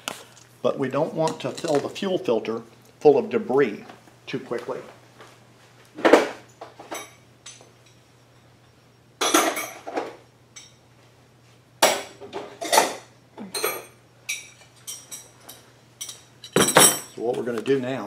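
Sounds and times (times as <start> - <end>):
metal tools clinking on workbench: 13.6 - 17.2.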